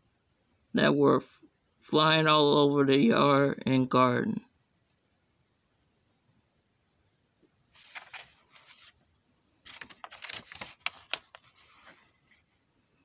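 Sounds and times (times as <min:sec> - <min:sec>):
paper page rustling: 0:07.7 - 0:12.6
paper snapping: 0:09.7 - 0:11.4.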